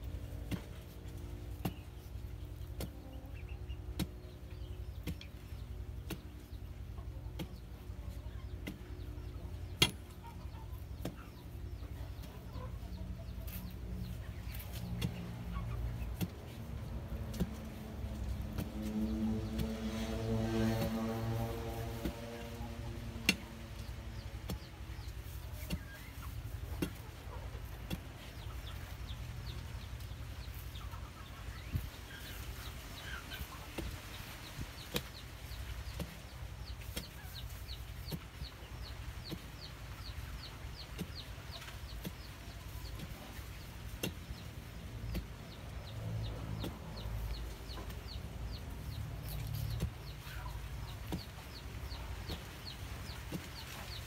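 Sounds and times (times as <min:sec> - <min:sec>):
chickens clucking: 0:00.0 - 0:54.0
iron bar striking soil: 0:08.6 - 0:10.2, 0:44.0 - 0:44.4.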